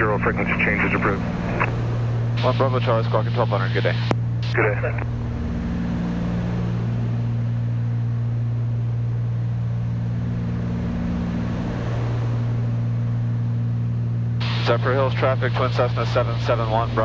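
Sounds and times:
aircraft piston engines droning: 0.0 - 17.0.

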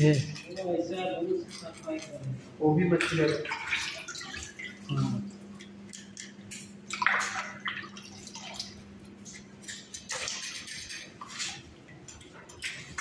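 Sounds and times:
water splashing in a plastic basin: 2.8 - 13.0.

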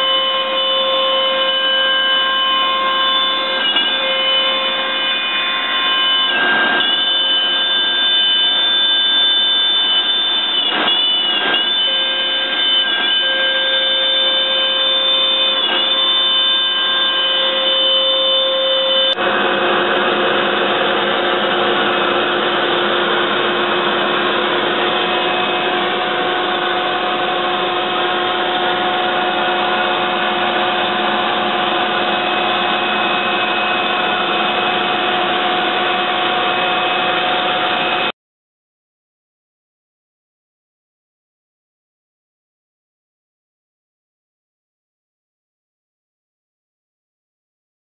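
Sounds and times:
dense steady machine noise: 0.0 - 38.1
router spindle whining: 0.0 - 38.1.

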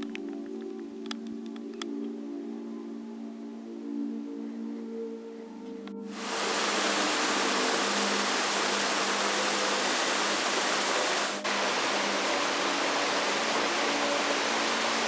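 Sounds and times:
waterfall rushing into pool: 6.1 - 15.0.

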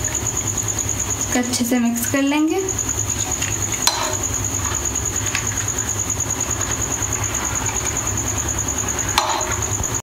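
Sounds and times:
water boiling in pot: 0.0 - 10.0
high-pitched whine: 2.5 - 10.0
metal spoon knocking pot: 3.8 - 4.3, 9.2 - 9.6.

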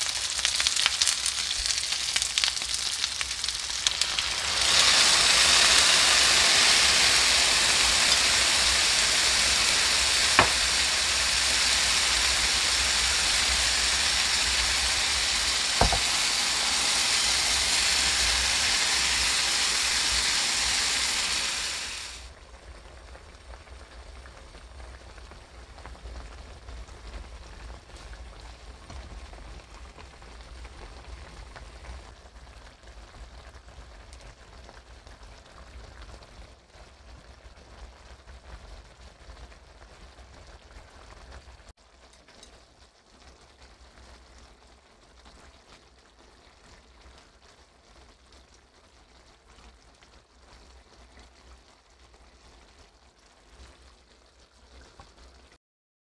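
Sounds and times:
sauce sizzling in a frying pan: 0.0 - 41.4.

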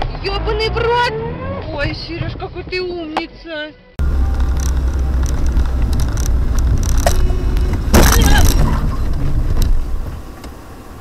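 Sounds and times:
car engine and road rumble: 0.0 - 2.8, 4.0 - 11.0.

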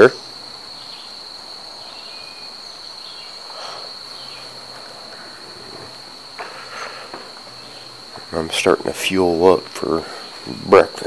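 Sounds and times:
insects chirring: 0.0 - 11.0
faint rustling: 3.3 - 8.6.

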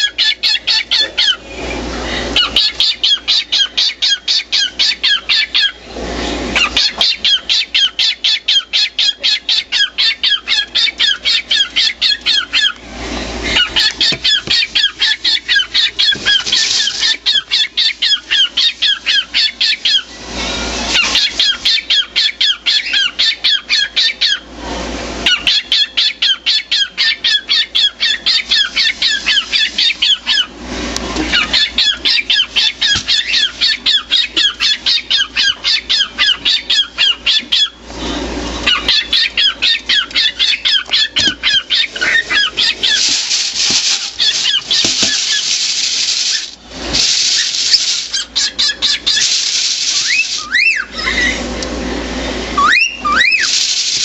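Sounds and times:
cockatiel chirping: 0.0 - 1.4, 2.4 - 5.8, 6.6 - 12.8, 13.4 - 20.2, 20.9 - 24.4, 25.2 - 30.5, 31.3 - 37.8, 38.6 - 45.6, 46.2 - 51.4, 52.6 - 54.0.

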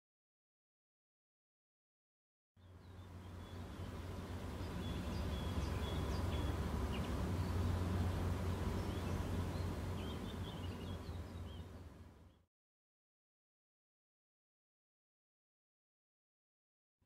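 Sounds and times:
boat diesel engine rumble: 2.6 - 12.4
small birds chirping: 2.6 - 12.5.

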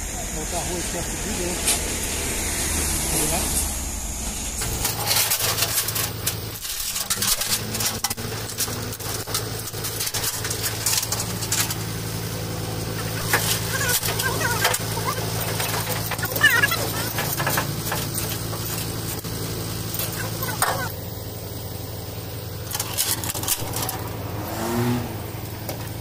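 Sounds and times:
truck engine running: 0.0 - 26.0
chain rattling on steel deck: 12.9 - 21.0.

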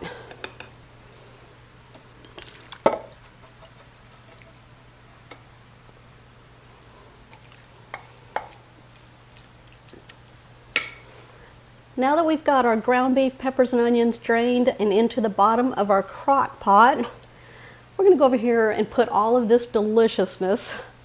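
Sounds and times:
faint steady hum: 0.0 - 21.0
wooden spoon scraping pan: 2.2 - 5.5.

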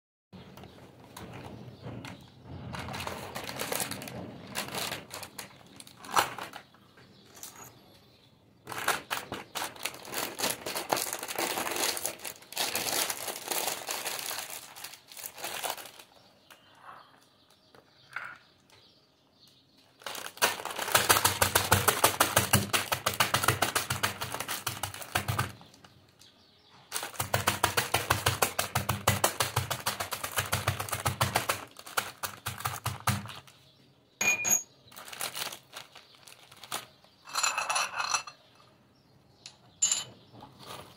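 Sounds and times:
snack packet crinkling: 2.9 - 6.6, 8.7 - 16.2, 20.0 - 25.5, 26.9 - 33.6, 34.9 - 37.1.

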